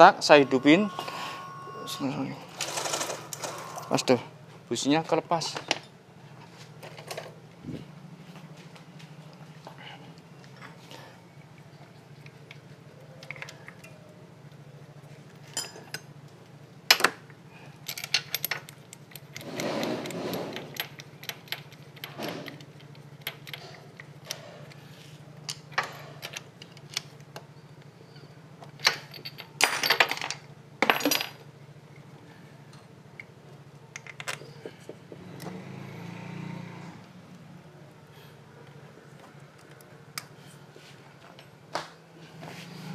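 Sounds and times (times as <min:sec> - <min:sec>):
metal tools clinking and knocking: 0:15.4 - 0:16.1, 0:17.8 - 0:24.8, 0:28.1 - 0:31.4.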